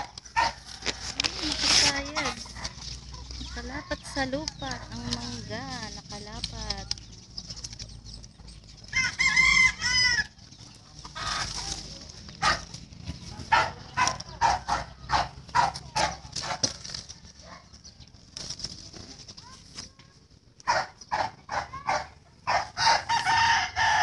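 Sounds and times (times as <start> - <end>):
chickens clucking: 0.0 - 24.0
rooster crowing: 8.9 - 10.4, 22.5 - 24.0.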